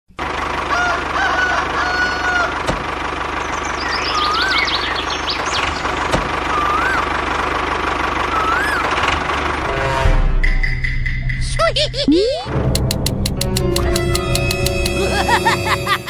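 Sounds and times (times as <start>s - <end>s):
low engine-like hum: 0.1s - 12.1s
rooster crowing: 0.7s - 2.7s
small birds chirping: 3.3s - 7.2s, 8.3s - 9.0s
sharp clicks: 12.6s - 15.0s.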